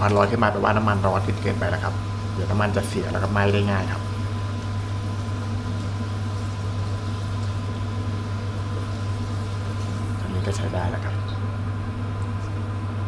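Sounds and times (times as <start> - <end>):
steady low hum: 0.0 - 13.0
oil sizzling in a wok: 1.2 - 10.3.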